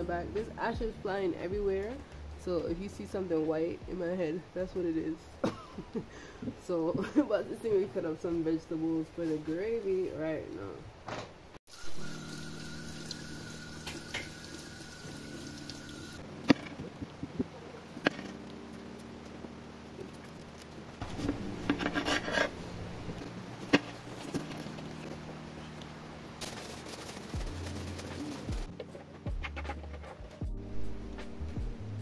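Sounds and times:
kitchen tap running: 11.7s - 16.2s.

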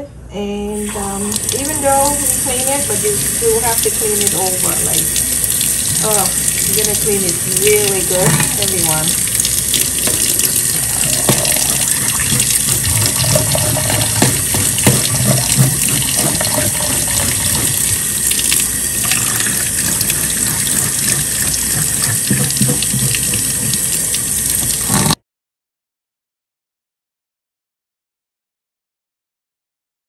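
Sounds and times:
tap water splashing in sink: 0.8s - 25.2s
sharp knocks: 13.8s - 16.4s.

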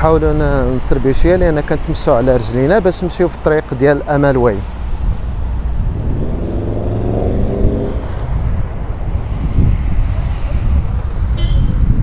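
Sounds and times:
steady low traffic rumble: 0.0s - 12.0s
vehicle engine rising in pitch: 5.4s - 9.4s.

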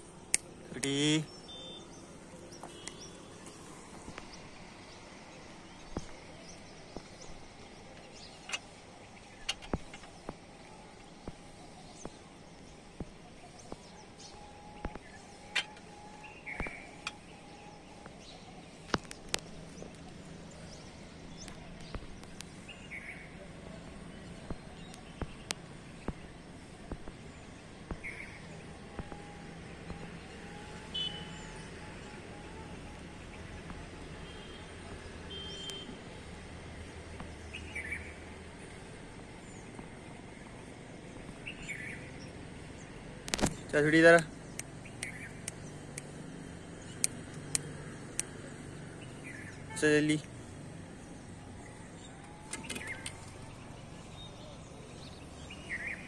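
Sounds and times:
sharp clicks: 44.4s - 48.4s, 52.2s - 53.3s.

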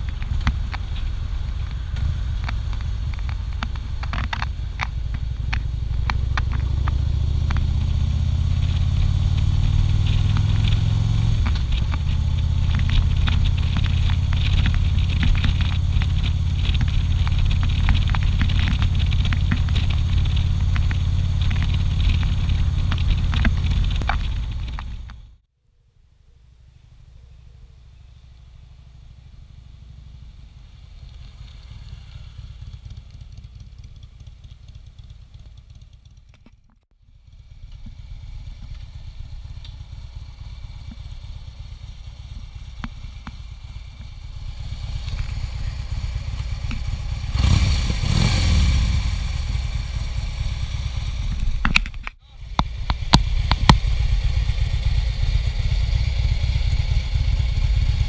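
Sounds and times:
motorcycle engine idling and revving: 0.0s - 58.0s
sharp clicks: 10.1s - 25.2s.

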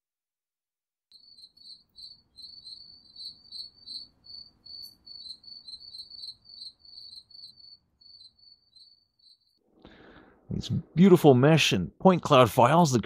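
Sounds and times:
crickets chirping: 1.1s - 9.6s.

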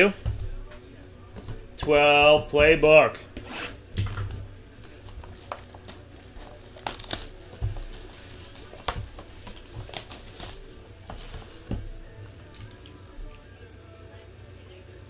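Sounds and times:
plastic shrink wrap crinkling: 4.0s - 13.4s.

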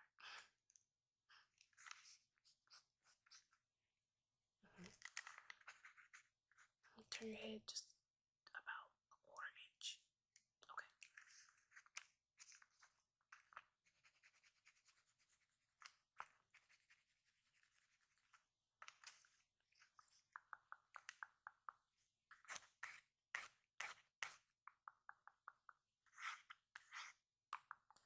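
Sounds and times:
pencil scratching on paper: 5.3s - 6.9s, 11.1s - 19.4s, 22.4s - 24.5s, 26.1s - 27.2s.

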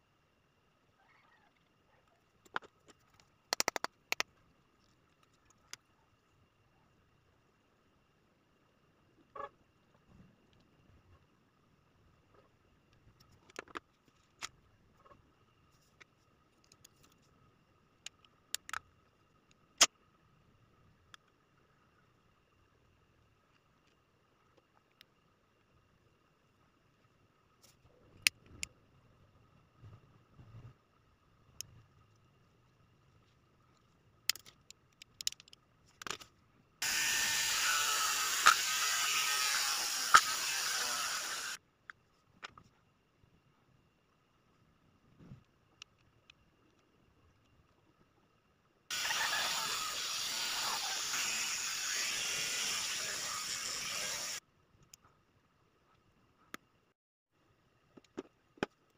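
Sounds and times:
plastic clicks and snaps: 2.4s - 4.3s, 18.0s - 18.9s, 34.3s - 36.3s
sharp clicks: 3.5s - 4.3s
mini rotary tool drilling plastic: 36.8s - 41.6s, 48.9s - 54.4s.

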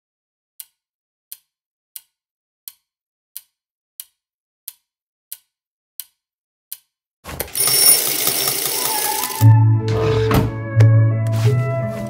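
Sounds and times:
alarm clock ticking: 7.5s - 9.5s.

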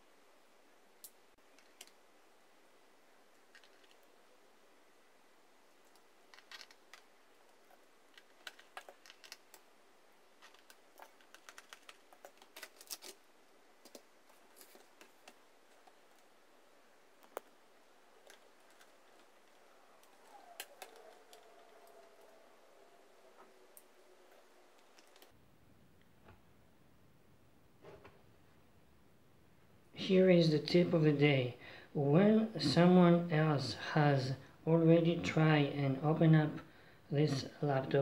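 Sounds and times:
plastic casing creaking: 5.9s - 7.1s, 10.4s - 13.2s.

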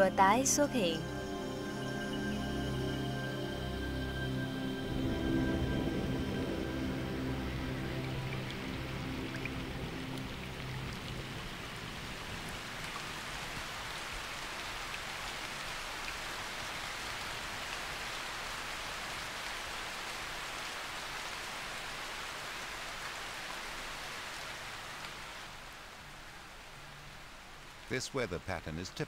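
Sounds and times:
rain falling on water: 0.0s - 2.3s, 4.6s - 29.0s.

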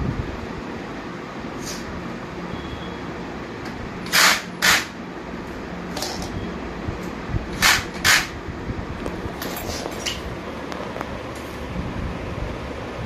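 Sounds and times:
steady low hum: 0.0s - 13.0s
power screwdriver bursts: 4.0s - 5.0s, 7.6s - 8.3s.

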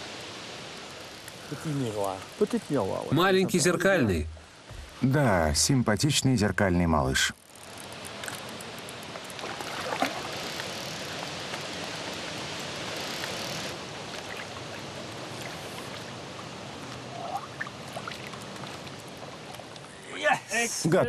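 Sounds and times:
fish thrashing in water: 9.3s - 11.6s, 14.1s - 19.8s.

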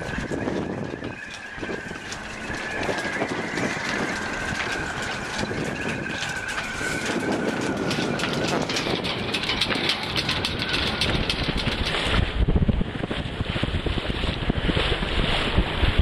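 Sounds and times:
outboard motor whining: 0.0s - 16.0s
wind rumbling on microphone: 0.0s - 16.0s.

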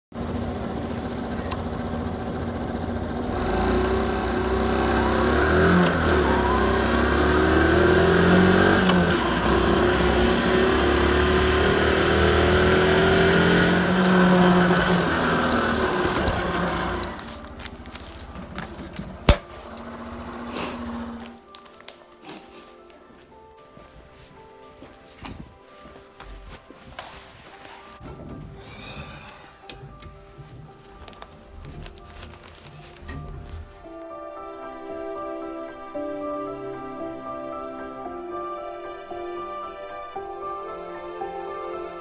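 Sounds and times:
motorbike engine running: 0.1s - 21.4s.

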